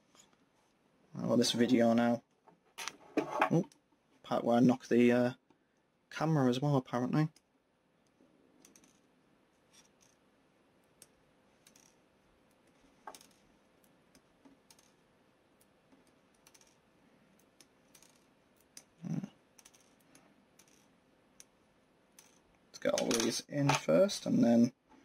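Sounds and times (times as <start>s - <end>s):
small plastic parts clicking: 7.3s - 9.1s, 10.8s - 23.3s.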